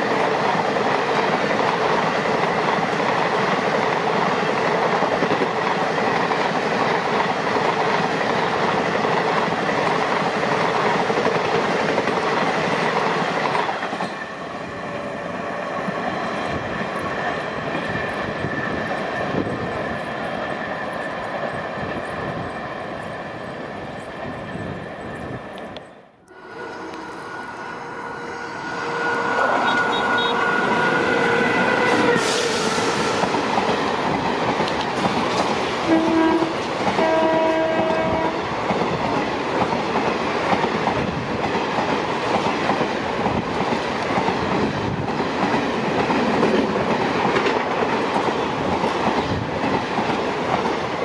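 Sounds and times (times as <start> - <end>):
rumble and clickety-clack of coaches: 0.0 - 14.2, 31.1 - 51.0
locomotive rushing past: 0.0 - 51.0
train horn blasts: 26.3 - 33.3, 35.9 - 38.5.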